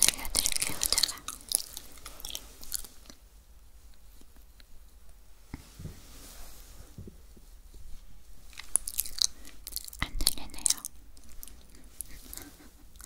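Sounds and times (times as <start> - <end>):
chewing crunchy sweets: 0.0 - 3.3, 8.5 - 13.0.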